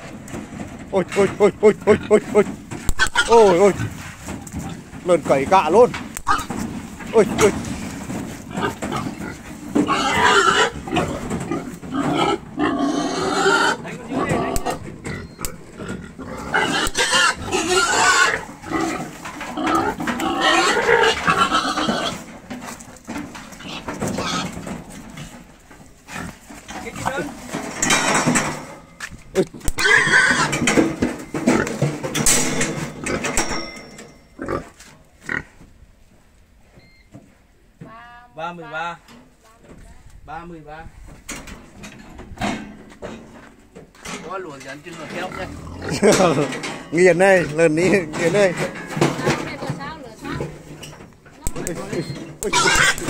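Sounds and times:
pigs squealing: 1.2 - 4.0, 6.2 - 7.5, 8.1 - 22.3, 23.5 - 24.8, 29.5 - 30.9, 45.2 - 46.2, 51.5 - 53.0
knocks and clatter: 22.2 - 29.5, 30.5 - 34.2, 46.0 - 53.0.

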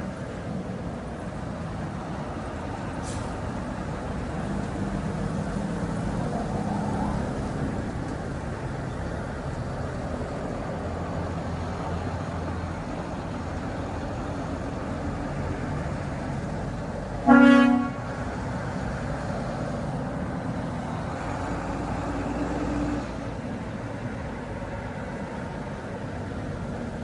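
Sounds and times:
buses driving past: 0.0 - 27.0
bus horn blast: 17.2 - 18.2.

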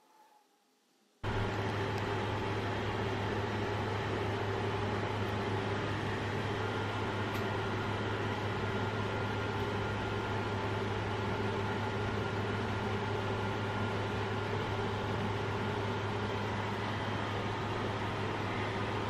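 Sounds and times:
mechanical hum: 0.0 - 19.0.

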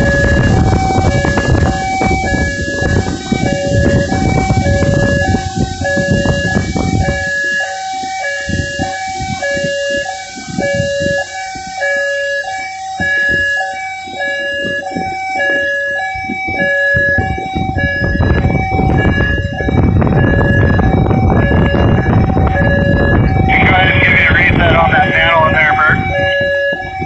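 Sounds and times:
two-tone hi-lo alarm: 0.0 - 27.0
rushing noise: 17.7 - 26.2.

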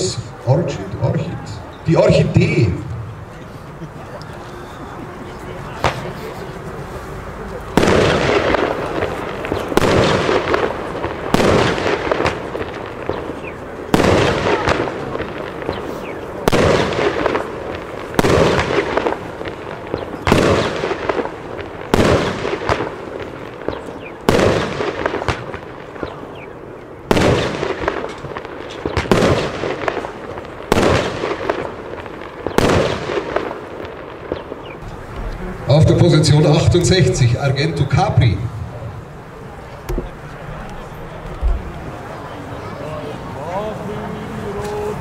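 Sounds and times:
firework battery bangs: 7.7 - 39.2, 39.8 - 42.4.

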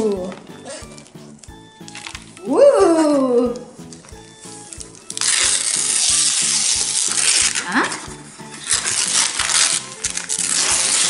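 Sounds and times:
soft background music: 0.0 - 11.0
wrapping paper tearing: 4.5 - 11.0.

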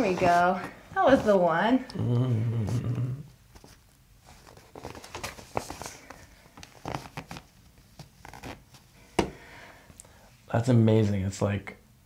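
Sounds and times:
rustling of paper cover: 3.6 - 8.9.

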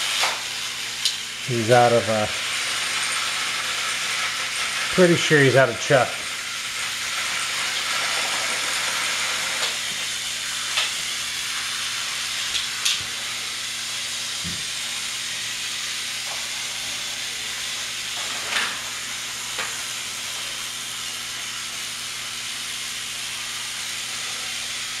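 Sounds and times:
steady hiss: 0.0 - 25.0.

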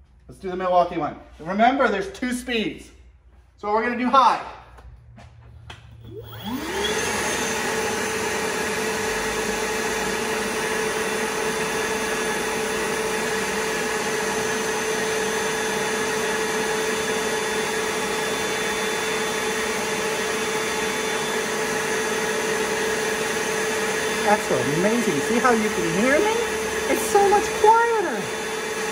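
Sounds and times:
vacuum motor whine: 6.0 - 28.9.

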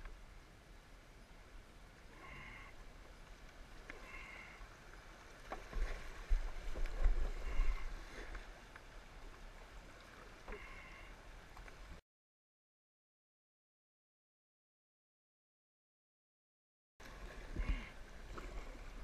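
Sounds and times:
rushing water: 0.0 - 12.0, 17.0 - 19.0
paddle strokes splashing: 2.0 - 12.0, 17.0 - 19.0.

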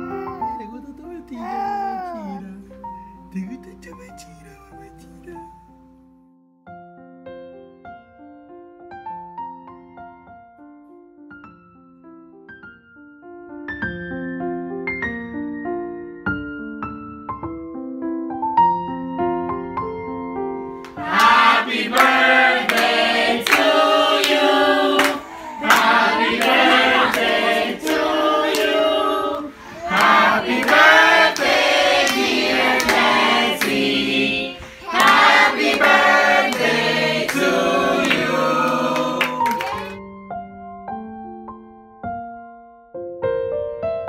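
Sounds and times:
hand claps: 20.8 - 34.0, 34.9 - 40.0
children singing: 21.0 - 40.0.

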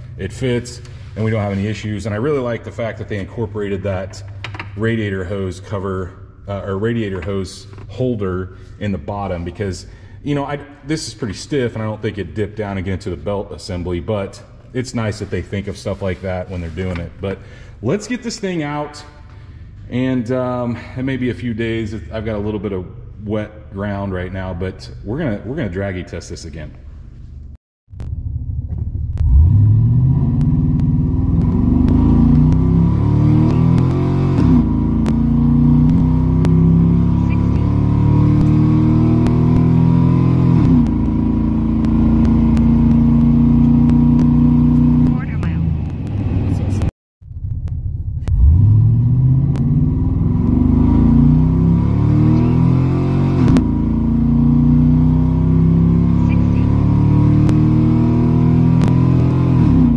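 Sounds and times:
engine accelerating from inside cab: 28.0 - 59.9.

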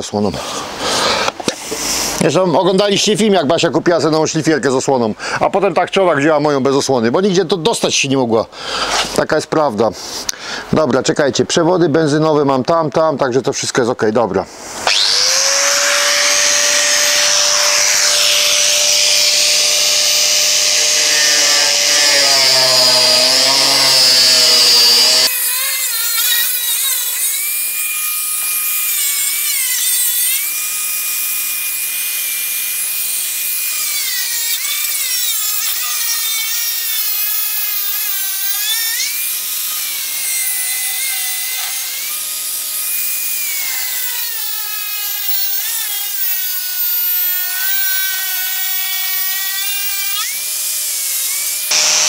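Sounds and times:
angle grinder cutting sheet steel: 14.8 - 52.0.

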